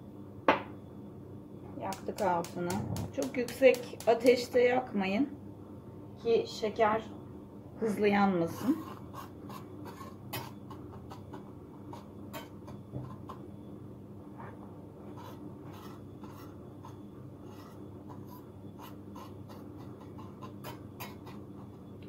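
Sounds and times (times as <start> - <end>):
whisk scraping sugar in pan: 8.4 - 13.5, 15.2 - 21.9.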